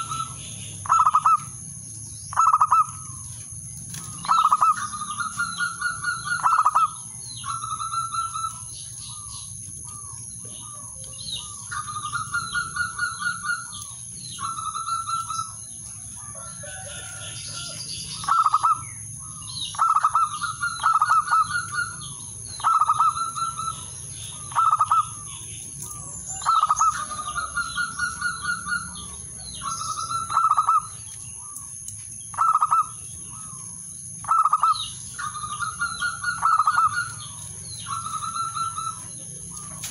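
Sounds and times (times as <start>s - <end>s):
dove cooing: 0.0s - 1.6s, 2.3s - 3.3s, 3.9s - 15.6s, 16.2s - 31.5s, 34.2s - 39.9s.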